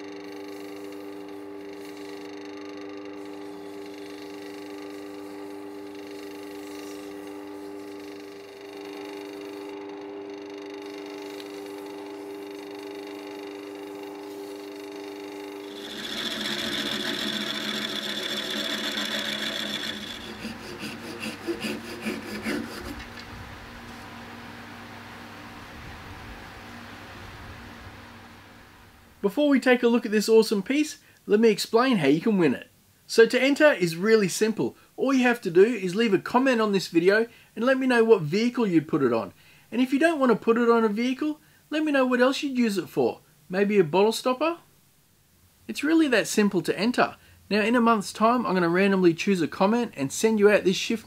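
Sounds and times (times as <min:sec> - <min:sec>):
wood lathe motor hum: 0:00.0 - 0:29.3
rasping sanding: 0:03.2 - 0:09.7, 0:14.0 - 0:14.9, 0:15.6 - 0:23.3.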